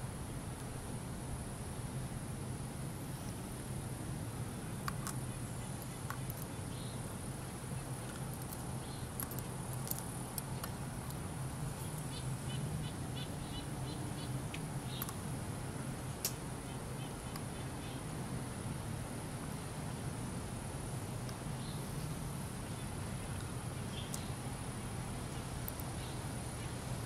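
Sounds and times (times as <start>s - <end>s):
high hiss: 0.0s - 27.0s
sharp light clicks: 4.8s - 5.2s, 16.2s - 16.4s.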